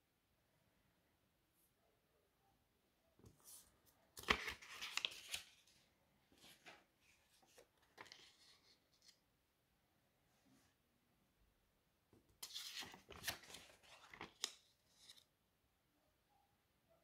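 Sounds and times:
banknotes rustling and crinkling: 3.2 - 9.2, 12.3 - 15.3.

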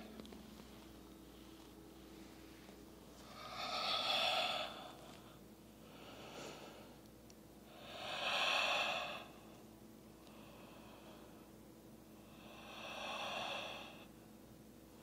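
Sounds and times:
woman breathing loudly: 3.2 - 7.1, 7.7 - 9.5, 10.2 - 11.6, 12.2 - 14.1.

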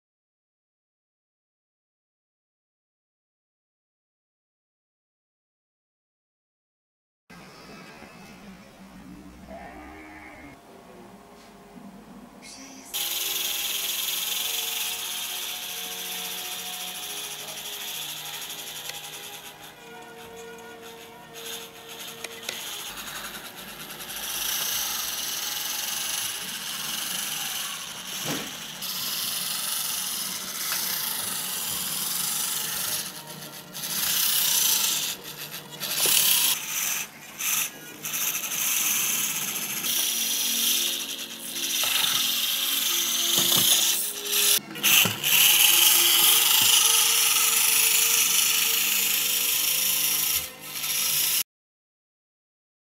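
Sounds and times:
small electric motor whirring: 12.9 - 51.4.

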